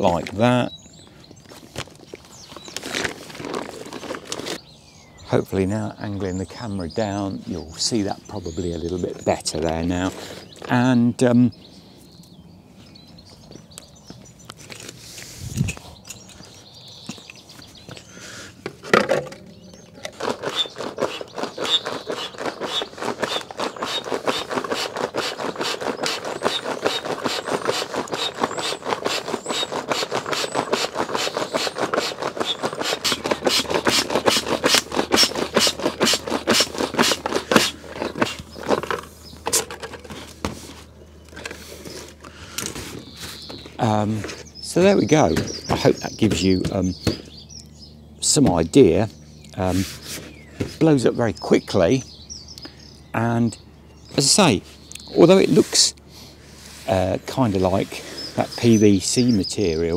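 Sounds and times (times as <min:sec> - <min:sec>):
handling knocks and rustles: 0:01.4 - 0:04.6, 0:14.1 - 0:47.3
foot pump air puffs: 0:20.1 - 0:44.5, 0:49.6 - 0:50.8.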